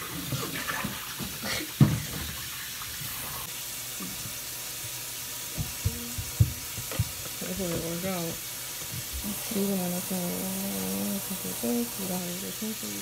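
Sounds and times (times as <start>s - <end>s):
steady rushing hiss: 4.4s - 13.0s.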